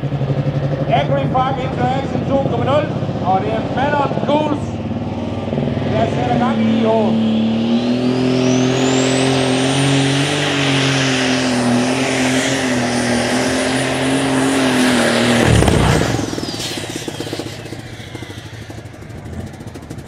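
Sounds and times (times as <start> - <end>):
high turbo whine: 0.0 - 20.0
tractor engine running flat out: 9.7 - 20.0.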